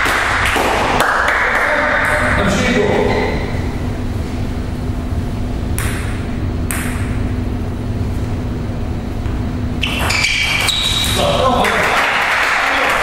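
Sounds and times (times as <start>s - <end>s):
steady low hum: 0.0s - 13.0s
table tennis ball bouncing on table: 5.7s - 7.2s.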